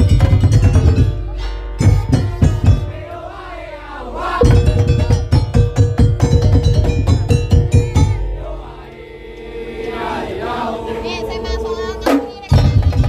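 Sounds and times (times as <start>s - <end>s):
drum and wood-block beat: 0.0s - 3.0s, 4.4s - 8.3s, 12.0s - 13.0s
voices singing: 1.8s - 5.2s, 7.3s - 13.0s.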